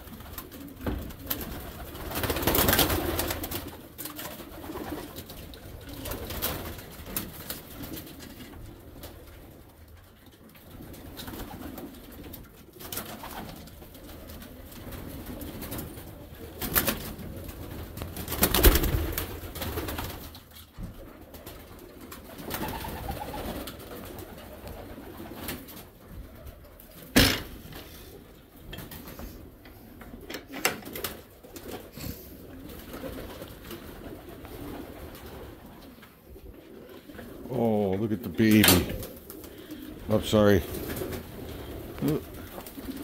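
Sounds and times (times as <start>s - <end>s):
pigeons cooing: 0.0s - 43.0s.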